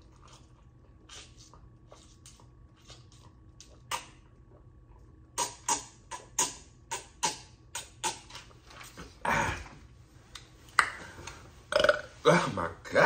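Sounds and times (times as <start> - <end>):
person gulping a drink: 11.7 - 12.2.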